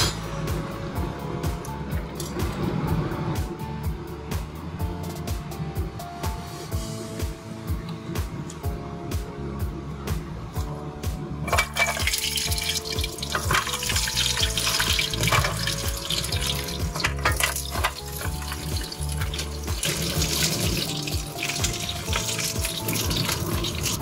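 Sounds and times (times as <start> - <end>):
dumplings sizzling in hot oil: 11.5 - 24.0
oil popping and spitting: 11.5 - 24.0.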